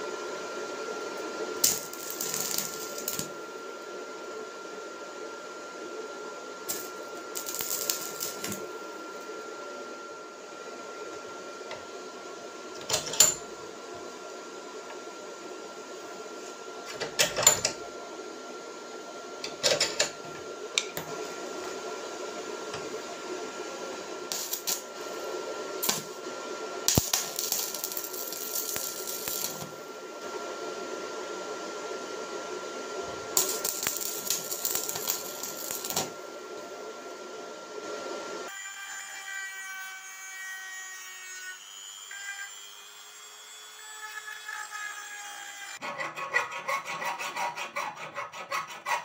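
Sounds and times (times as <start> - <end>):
rotary tool whine: 0.0 - 17.8, 18.5 - 31.4, 32.8 - 36.7.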